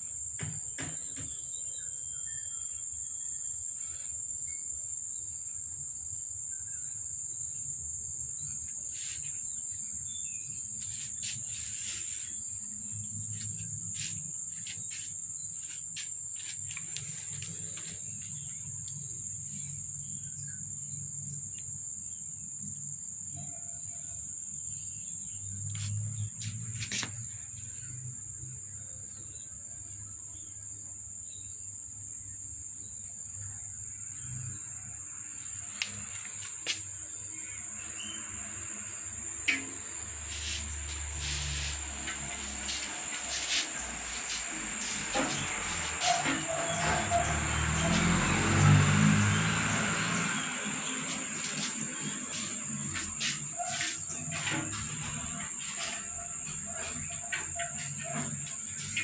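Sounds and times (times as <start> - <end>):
insect trilling: 33.5 - 59.0.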